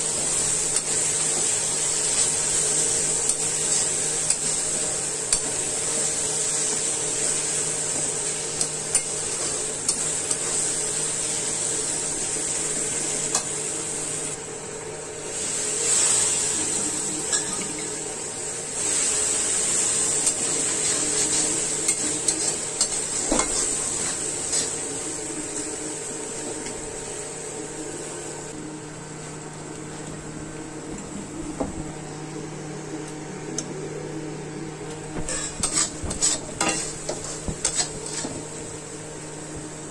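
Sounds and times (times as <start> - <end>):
food sizzling in oil: 0.0 - 28.6, 35.1 - 39.9
metal turner scraping pan: 35.3 - 38.4.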